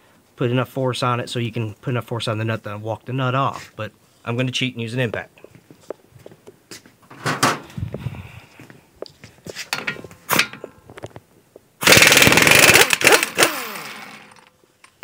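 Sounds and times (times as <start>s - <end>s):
clicks and knocks: 7.1s - 7.7s, 9.7s - 11.2s
impact wrench rattling: 9.7s - 10.7s, 11.8s - 15.0s.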